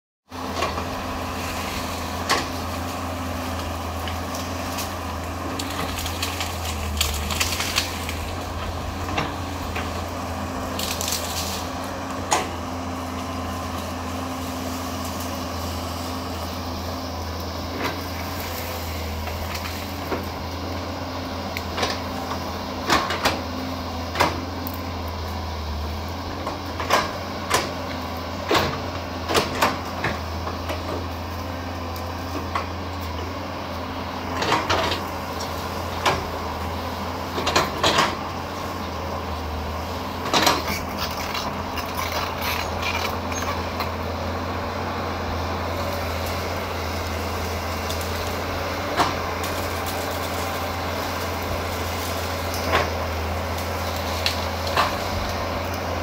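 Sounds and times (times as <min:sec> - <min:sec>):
excavator diesel engine running: 0:00.3 - 0:56.0
wood cracking and snapping: 0:03.5 - 0:12.6, 0:46.0 - 0:55.8.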